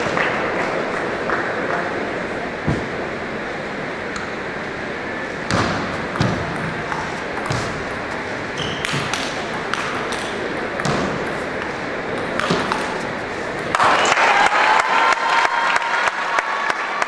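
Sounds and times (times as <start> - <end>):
murmur of large hall: 0.0 - 17.0
ball bouncing on table: 5.5 - 8.0, 8.6 - 13.0
ping pong ball clicking off bats: 6.1 - 13.0.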